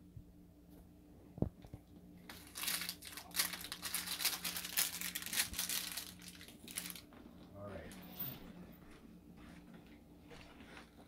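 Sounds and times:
plastic bags crinkling: 2.2s - 7.2s.

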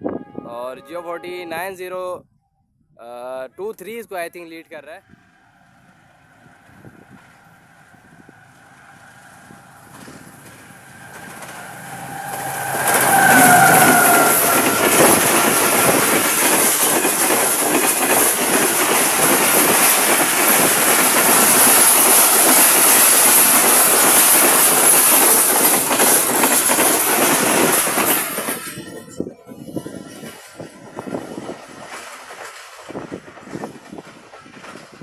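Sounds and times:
locomotive horn: 0.0s - 1.8s, 10.5s - 16.3s
train wheels rushing on rails: 5.2s - 35.0s
rail clickety-clack: 5.9s - 35.0s.

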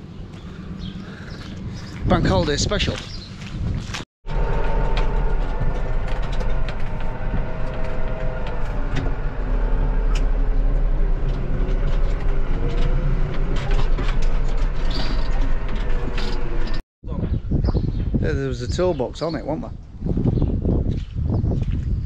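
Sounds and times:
tractor engine running: 4.2s - 16.8s.

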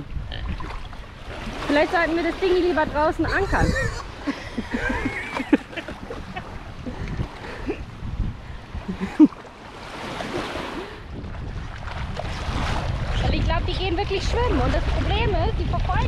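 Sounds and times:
wind on microphone: 0.0s - 16.0s
small waves washing on sand: 0.7s - 16.0s.

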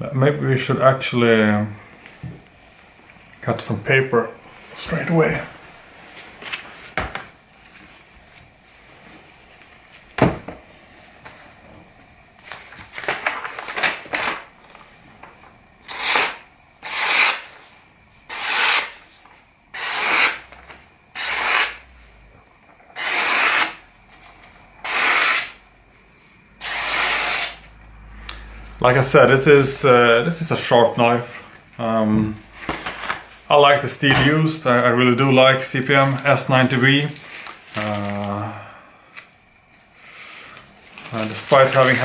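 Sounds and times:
knife slicing paper: 15.9s - 17.6s, 18.3s - 19.0s, 19.8s - 20.4s, 21.2s - 21.8s, 23.0s - 23.8s, 24.8s - 25.6s, 26.6s - 27.6s.

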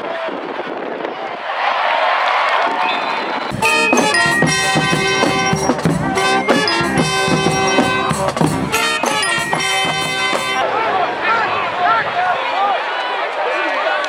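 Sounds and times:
bass drum: 3.5s - 10.6s
marching band playing: 3.5s - 10.6s
snare drum: 3.5s - 10.6s.

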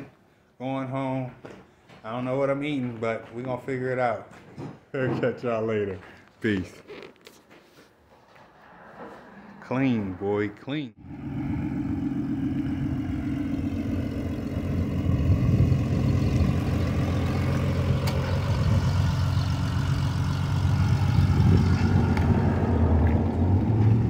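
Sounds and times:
car engine driving past: 8.1s - 24.0s.

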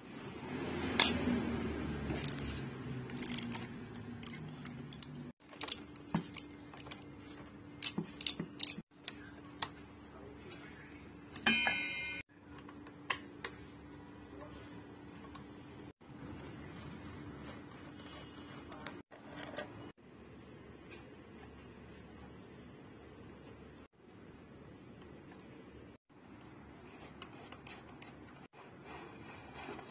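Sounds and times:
metallic ring: 11.4s - 12.2s.

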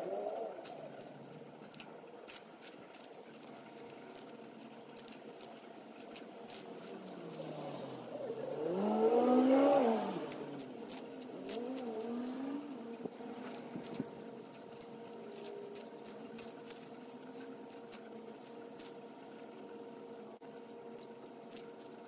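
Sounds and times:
engine-like hum: 0.0s - 22.0s
faint wavering hum: 0.0s - 22.0s
tortoise crunching lettuce: 0.0s - 22.0s.

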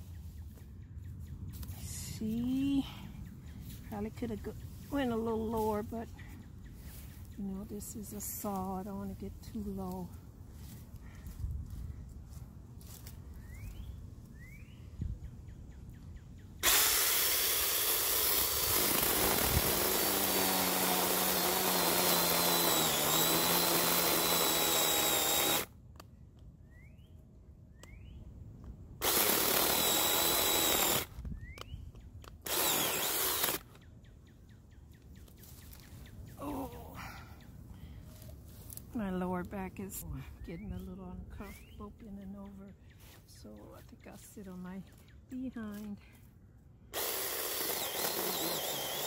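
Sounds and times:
cordless chainsaw whining: 16.6s - 25.7s, 29.0s - 31.2s, 32.4s - 33.7s, 46.9s - 49.0s.

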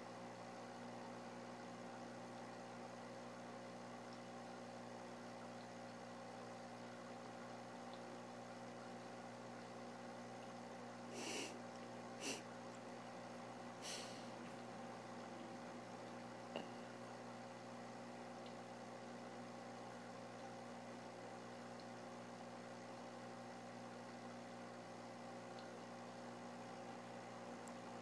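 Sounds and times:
electrical hum: 0.0s - 28.0s.

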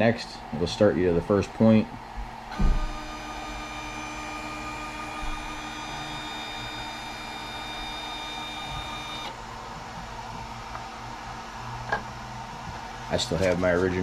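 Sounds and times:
stepper motors whining: 0.0s - 12.0s.

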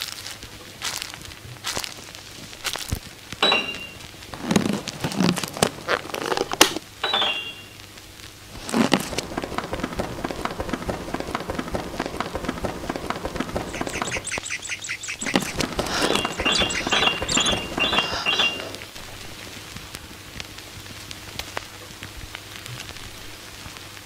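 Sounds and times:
faint crackle: 0.0s - 24.0s
rapid clicks: 3.4s - 24.0s
bird-like chirping calls: 13.1s - 18.9s.

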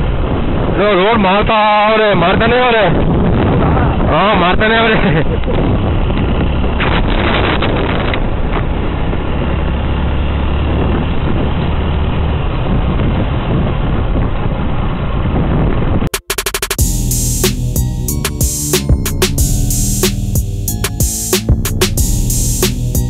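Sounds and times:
wind rushing over microphone: 0.0s - 16.1s.

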